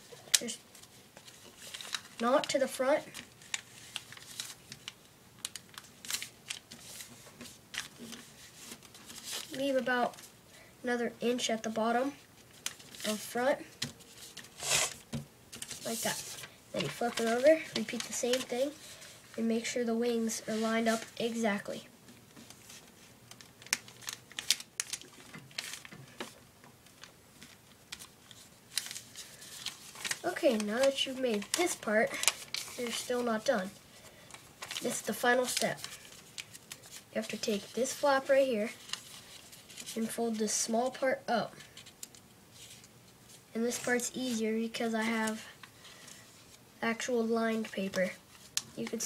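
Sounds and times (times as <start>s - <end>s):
paper rustling and scraping: 0.0s - 10.3s, 12.4s - 26.4s, 27.0s - 41.0s, 41.6s - 46.6s.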